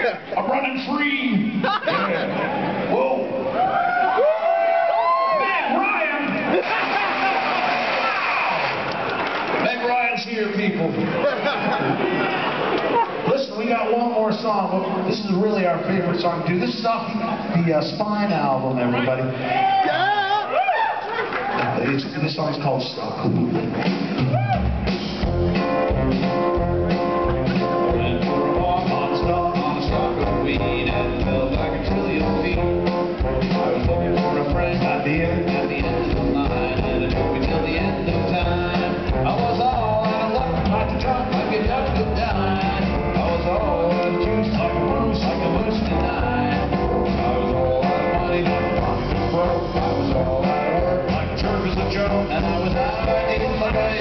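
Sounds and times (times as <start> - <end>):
live rock band playing: 23.2 - 54.0.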